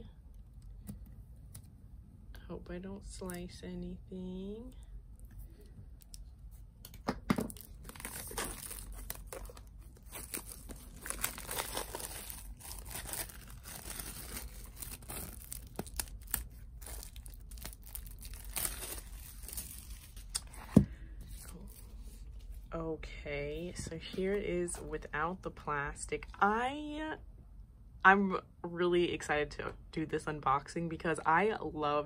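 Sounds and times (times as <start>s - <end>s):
plastic wrap crinkling and tearing: 7.5s - 20.6s.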